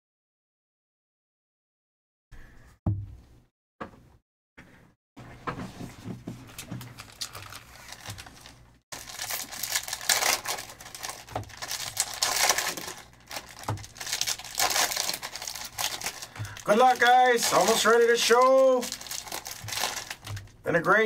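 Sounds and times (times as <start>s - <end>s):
foil wrappers crinkling and tearing: 6.5s - 21.0s.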